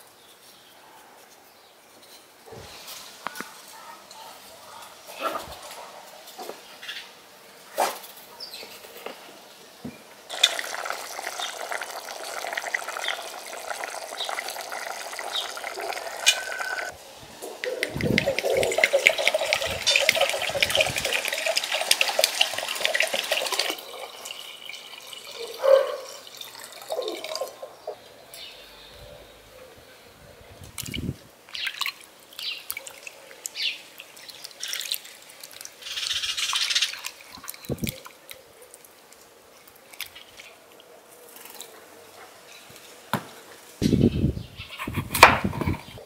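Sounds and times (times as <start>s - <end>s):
water pouring into glass bowl: 10.3s - 16.9s, 17.6s - 27.6s, 33.9s - 38.1s.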